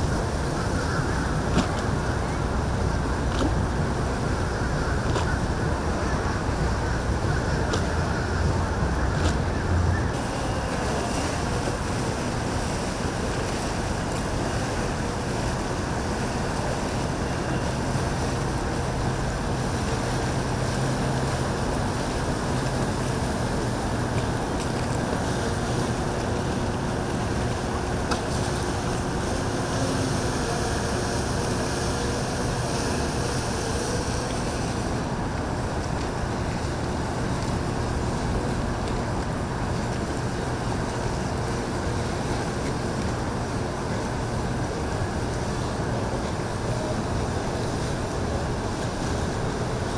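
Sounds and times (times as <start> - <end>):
wind buffeting microphone: 0.0 - 29.8
motorboat engines running: 0.0 - 49.9
waves washing: 0.0 - 49.9.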